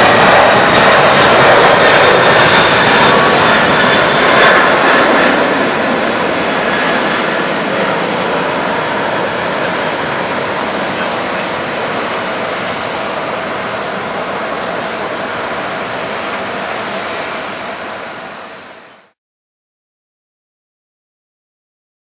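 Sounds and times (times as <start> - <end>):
jet engine roar with whine: 0.0 - 19.2.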